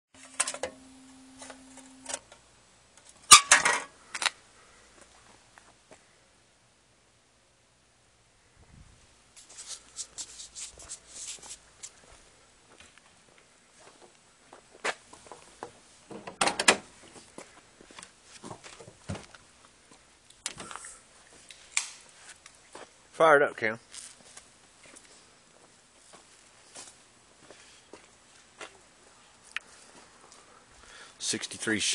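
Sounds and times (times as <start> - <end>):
faint steady hum: 0.2 - 31.9
rustling: 9.4 - 14.2
footsteps: 9.4 - 15.9, 16.9 - 23.0.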